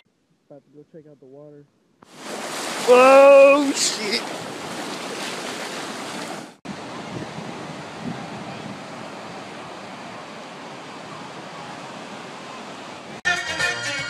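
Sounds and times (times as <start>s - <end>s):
ocean surf washing ashore: 2.1s - 13.2s
wind on microphone: 6.1s - 9.8s.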